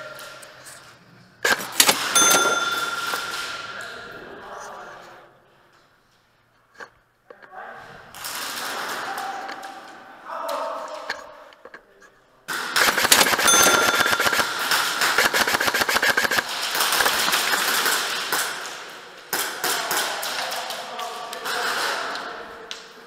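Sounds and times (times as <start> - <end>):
airsoft guns rapid firing: 1.4 - 3.6, 12.5 - 20.9.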